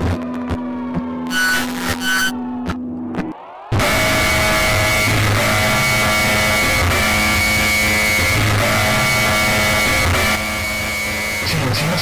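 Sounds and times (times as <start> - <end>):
distorted electronic alarm tone: 1.3 - 2.4, 3.7 - 12.0.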